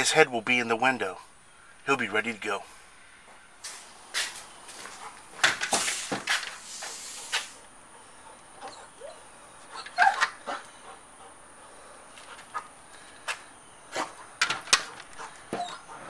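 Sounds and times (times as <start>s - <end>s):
dog whining: 8.6s - 10.7s, 15.2s - 16.0s.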